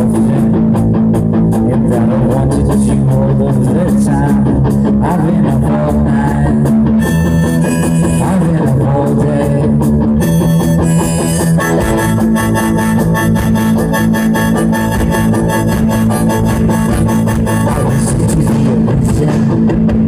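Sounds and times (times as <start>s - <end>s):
live rock band: 0.0s - 20.0s
harmonica playing: 6.9s - 9.0s, 10.2s - 18.9s.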